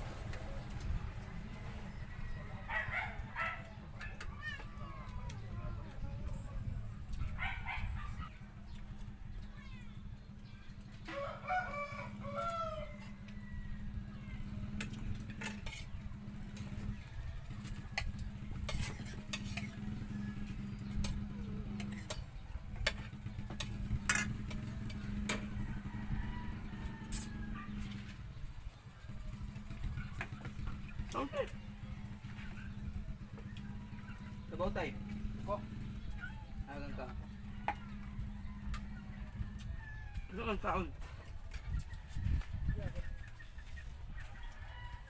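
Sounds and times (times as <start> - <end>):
rooster crowing: 1.5 - 3.3, 11.0 - 14.5, 19.7 - 20.8, 25.0 - 28.1, 36.0 - 40.8, 44.2 - 45.0.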